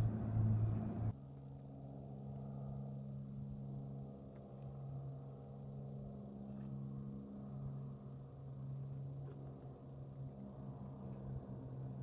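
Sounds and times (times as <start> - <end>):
distant seaplane engine drone: 0.0 - 12.0.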